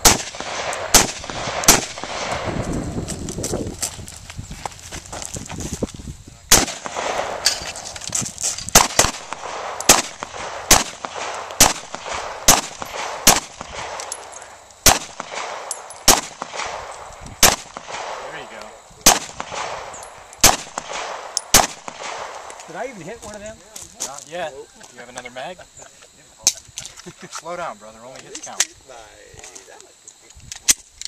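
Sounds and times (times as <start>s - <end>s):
pistol gunshots: 0.0s - 2.6s, 6.5s - 7.8s, 8.7s - 22.6s.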